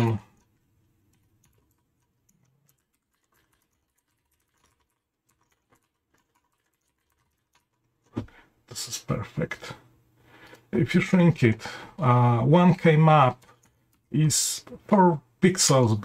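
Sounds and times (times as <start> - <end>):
typing on computer keyboard: 0.0 - 8.2, 13.2 - 14.0.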